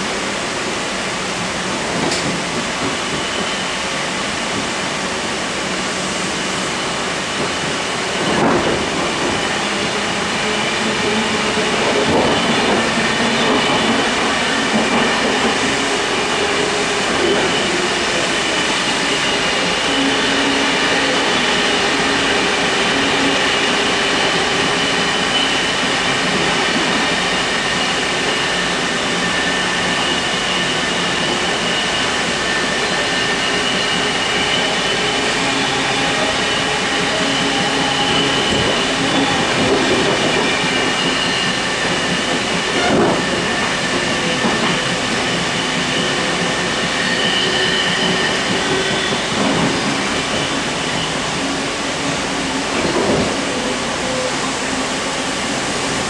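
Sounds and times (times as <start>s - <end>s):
wheels running on rail: 32.6s - 56.0s.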